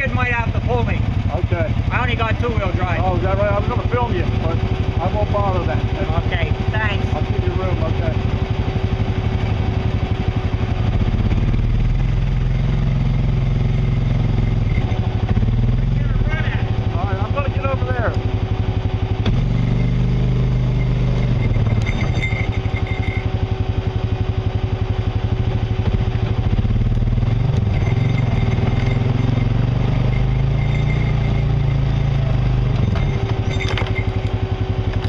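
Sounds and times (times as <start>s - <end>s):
vehicle engine running: 0.0s - 35.0s
thin whine: 12.3s - 35.0s.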